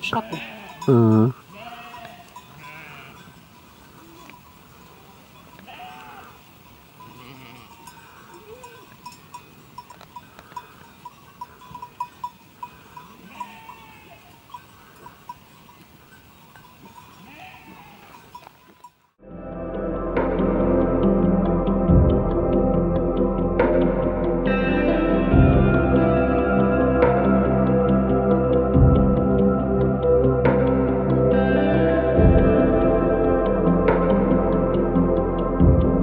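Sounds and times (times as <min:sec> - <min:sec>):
sheep and goats bleating: 0:00.0 - 0:15.4, 0:16.8 - 0:18.8
small bell clinking: 0:00.4 - 0:06.0, 0:06.6 - 0:19.1.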